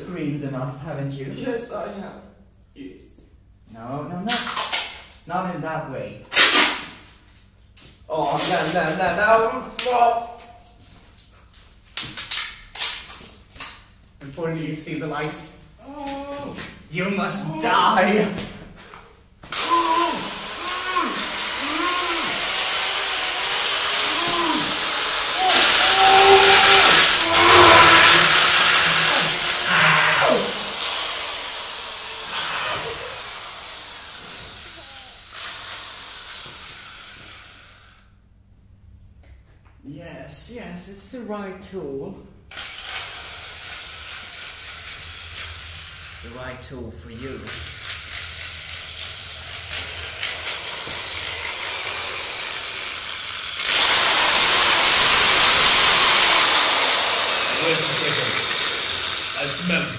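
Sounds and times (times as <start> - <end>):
electric power drill whine: 19.5 - 38.0, 42.5 - 46.2, 47.6 - 59.9
blowtorch flame hissing: 19.6 - 38.1, 49.8 - 59.9.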